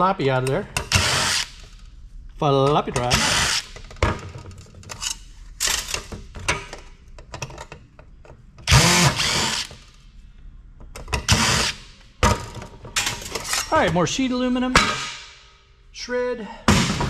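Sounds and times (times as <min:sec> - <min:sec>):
cordless power drill running: 0:08.7 - 0:09.7.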